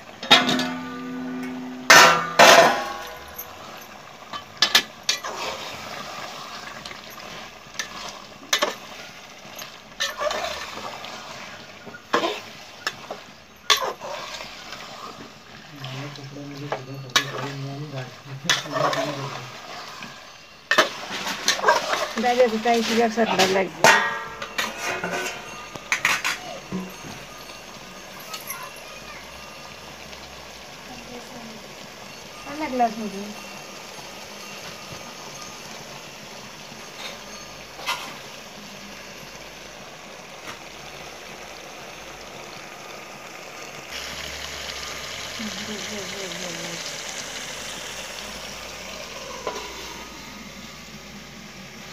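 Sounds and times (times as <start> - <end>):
background hiss: 0.0 - 51.9
food sizzling in a pot: 0.0 - 51.9.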